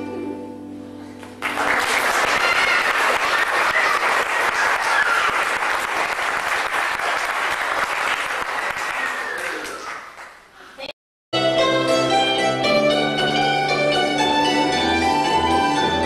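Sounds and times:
audience applause: 1.4s - 10.5s.

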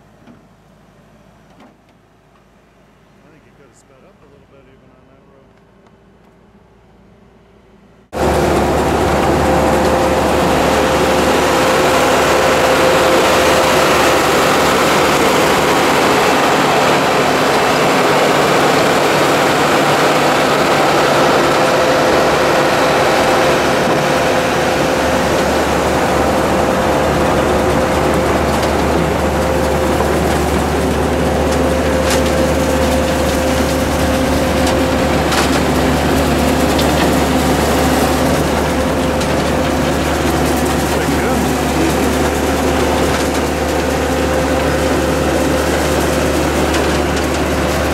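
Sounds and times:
tractor and harvester hum: 0.0s - 47.9s
steady machine whine: 2.6s - 47.9s.

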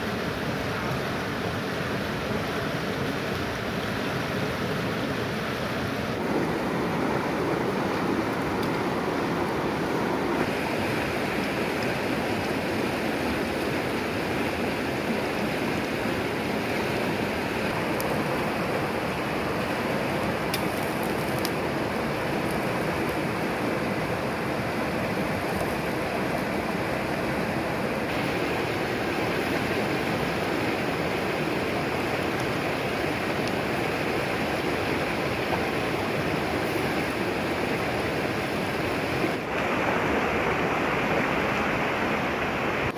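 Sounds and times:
river rushing over rocks: 0.0s - 42.9s.

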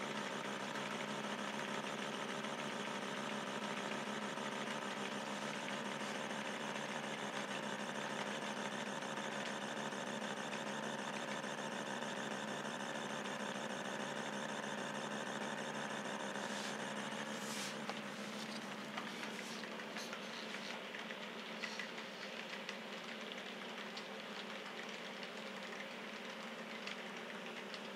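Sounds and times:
wheels clicking on track: 12.4s - 27.9s.

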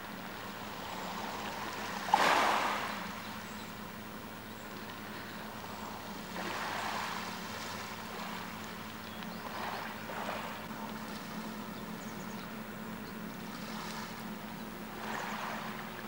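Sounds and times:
steady low hum: 0.0s - 16.0s
waves washing over pebbles: 2.0s - 3.0s.

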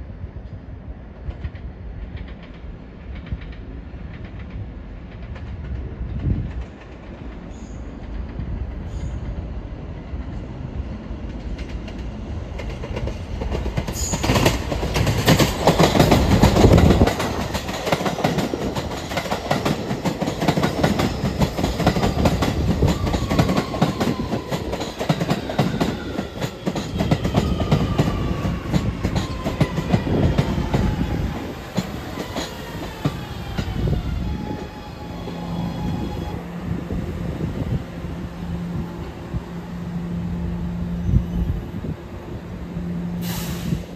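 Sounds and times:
train wheels clattering over rails: 11.2s - 36.3s.

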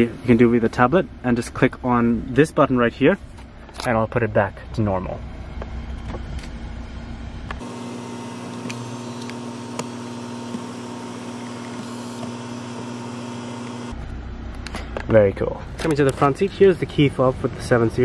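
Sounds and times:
power seat motor hum: 7.6s - 14.0s.

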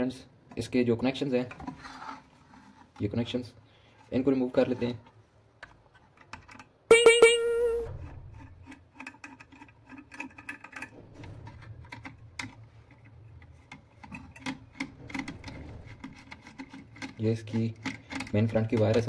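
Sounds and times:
loud ringing tone: 6.9s - 8.0s.

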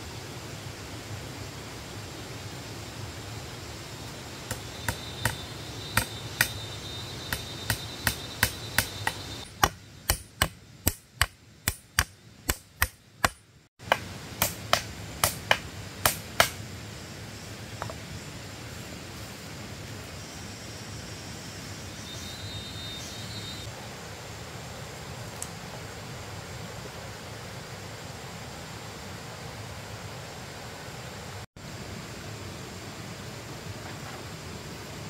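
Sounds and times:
hammer knocking on bamboo: 6.0s - 6.6s, 7.3s - 16.6s.

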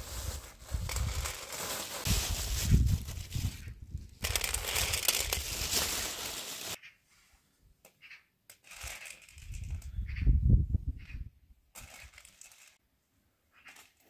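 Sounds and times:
plastic bag crinkling: 0.0s - 6.8s
dried beans poured on steel tray: 4.2s - 6.8s.

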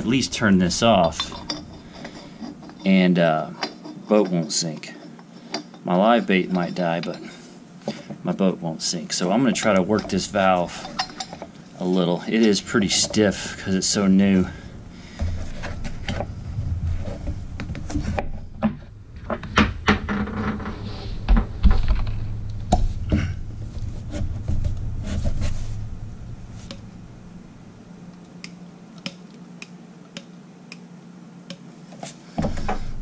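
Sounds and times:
low hum: 0.0s - 3.7s, 9.3s - 29.4s.

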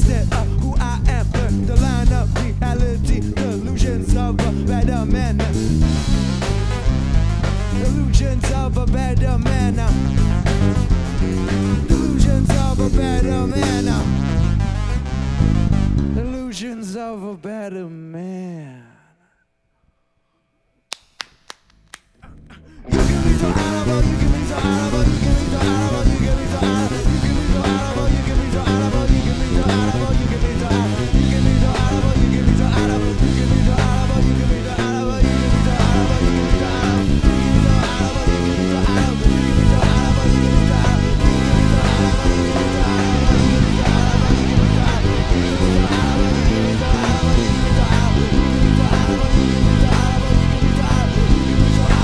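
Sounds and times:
steady drum beat: 0.0s - 14.8s, 22.9s - 52.0s
live band playing: 0.0s - 16.2s, 22.9s - 52.0s
bass guitar line: 0.0s - 17.0s, 22.2s - 52.0s
wavering lead line: 22.8s - 52.0s.

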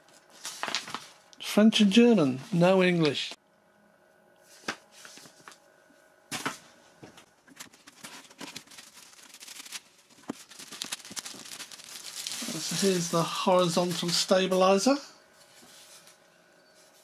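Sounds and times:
paper booklet rustling: 0.1s - 1.2s, 4.5s - 5.6s, 7.4s - 16.2s.

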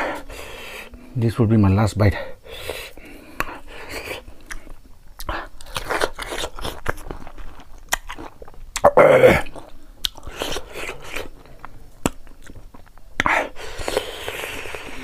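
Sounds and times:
wet crunching chewing: 3.4s - 15.0s
person vocal sound: 8.8s - 9.6s.

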